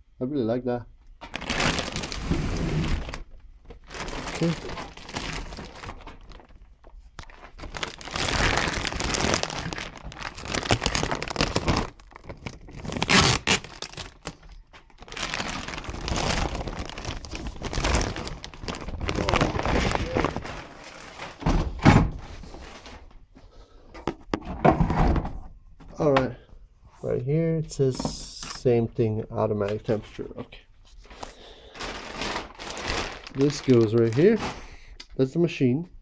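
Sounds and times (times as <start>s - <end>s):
plastic bags crinkling: 1.2s - 21.4s, 31.0s - 34.8s
knocks and thuds: 21.4s - 22.2s.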